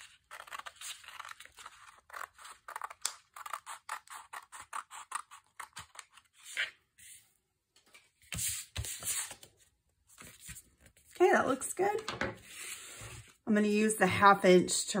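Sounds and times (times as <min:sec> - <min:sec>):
scissors snipping paper: 0:00.0 - 0:06.6
paper rustling: 0:07.8 - 0:11.2.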